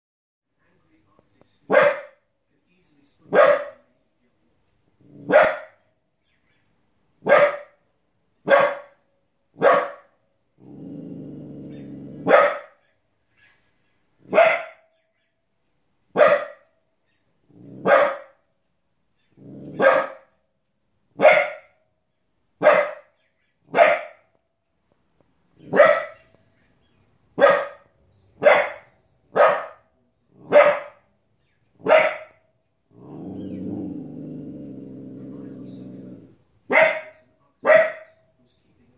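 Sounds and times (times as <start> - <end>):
puppy barking: 1.7 - 2.2, 3.3 - 3.9, 5.2 - 5.8, 7.2 - 7.8, 8.4 - 9.0, 9.6 - 10.2, 11.7 - 13.0, 14.2 - 14.9, 16.1 - 16.8, 17.8 - 18.4, 19.4 - 20.4, 21.2 - 21.8, 22.6 - 24.4, 25.6 - 26.4, 27.4 - 31.1, 31.8 - 32.5, 36.7 - 38.2.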